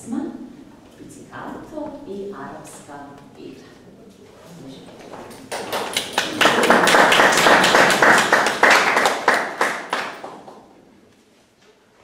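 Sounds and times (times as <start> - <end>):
audience applauding: 5.2 - 10.8.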